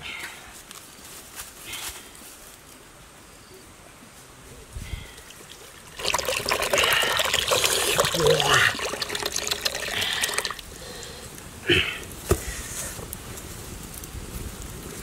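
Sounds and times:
liquid pouring into metal pot: 0:05.3 - 0:10.7.

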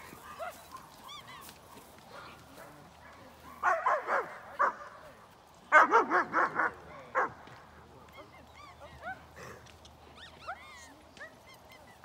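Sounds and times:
dogs barking loudly: 0:01.7 - 0:05.0, 0:05.7 - 0:07.4.

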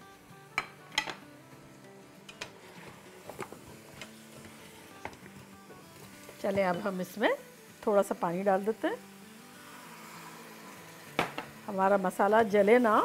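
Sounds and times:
soft background music: 0:00.0 - 0:13.0.

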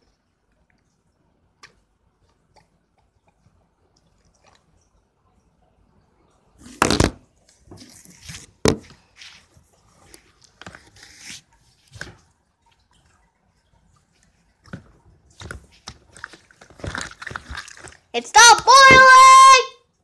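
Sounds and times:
wet gel squelching: 0:07.4 - 0:18.9.

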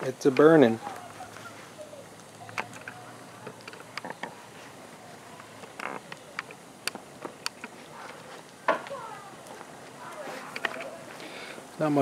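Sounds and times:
wood fire crackling: 0:00.0 - 0:12.0.

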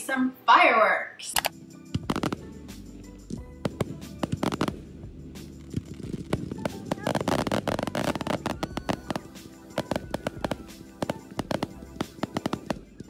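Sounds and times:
background music: 0:00.0 - 0:13.0
fireworks popping and banging: 0:01.9 - 0:02.6, 0:03.3 - 0:13.0
fireworks crackling: 0:02.0 - 0:02.7, 0:03.3 - 0:13.0.

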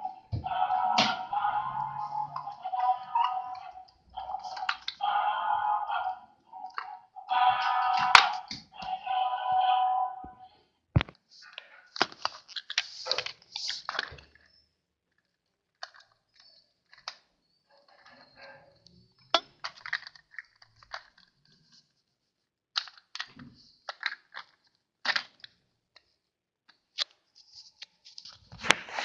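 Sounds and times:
plastic toy parts clicking: 0:01.0 - 0:05.1, 0:06.6 - 0:09.1, 0:12.0 - 0:14.4, 0:15.1 - 0:18.2, 0:19.3 - 0:21.4, 0:22.7 - 0:26.1.

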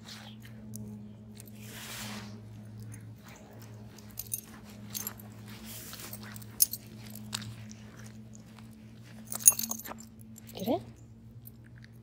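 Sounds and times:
steady low hum: 0:00.0 - 0:12.0
dog collar jingling: 0:03.6 - 0:08.5, 0:09.1 - 0:10.7.

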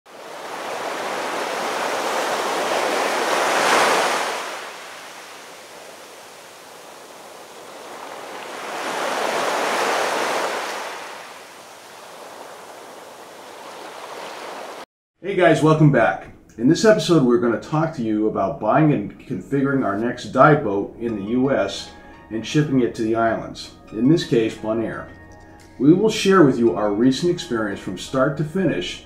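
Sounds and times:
ocean waves washing in: 0:00.1 - 0:14.9.

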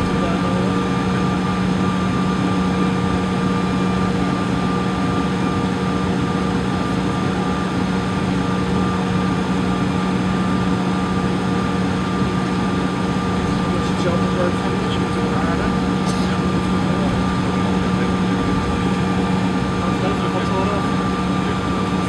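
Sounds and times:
aircraft cabin engine hum: 0:00.0 - 0:22.0.

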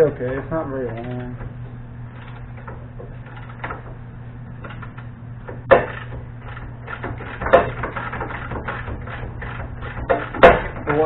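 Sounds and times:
tools and metal parts clanking: 0:00.0 - 0:04.0, 0:04.6 - 0:11.0
steady low hum: 0:00.0 - 0:11.0
loud knocks: 0:05.4 - 0:11.0.

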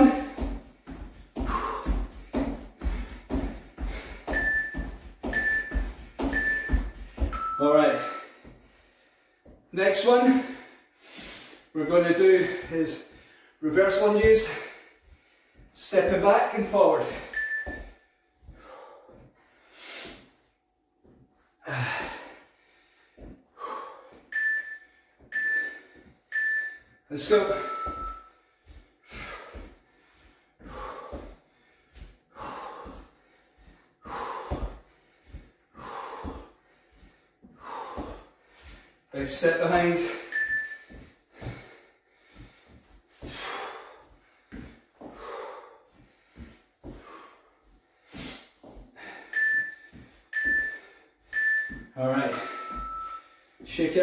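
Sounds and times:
soft footsteps on floor: 0:00.0 - 0:09.7, 0:12.1 - 0:24.4, 0:27.3 - 0:53.8
man breathing hard: 0:00.0 - 0:15.8, 0:16.9 - 0:20.6, 0:21.4 - 0:24.3, 0:27.3 - 0:53.7
interval timer beeps: 0:04.2 - 0:08.4, 0:17.0 - 0:18.0, 0:24.3 - 0:28.4, 0:40.0 - 0:41.0, 0:49.2 - 0:53.4.

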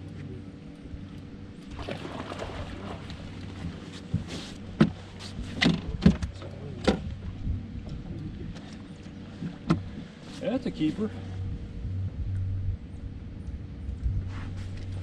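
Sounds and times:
steady low hum: 0:00.0 - 0:15.0
knocks and thumps on a boat: 0:01.7 - 0:10.2.

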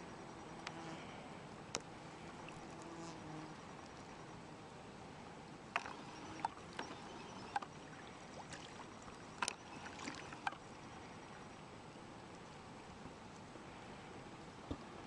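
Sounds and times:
faint steady hiss: 0:00.0 - 0:15.0
water splashes and drips: 0:08.4 - 0:10.6.

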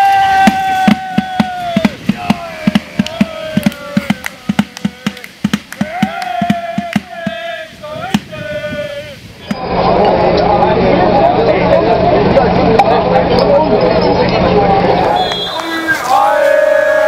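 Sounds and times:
drum beating: 0:00.0 - 0:08.4
noisy crowd hubbub: 0:00.0 - 0:17.0
fans singing a chant: 0:00.4 - 0:09.2, 0:15.1 - 0:17.0.

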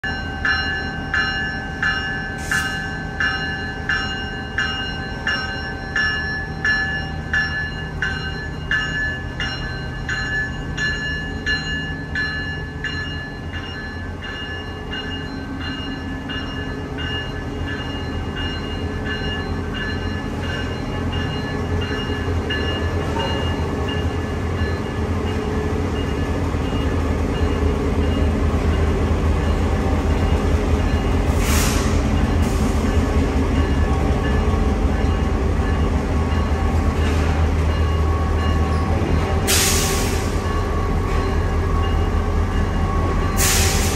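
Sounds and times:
diesel locomotive idling: 0:00.0 - 0:43.9
air hiss: 0:31.3 - 0:32.8, 0:43.4 - 0:43.9.

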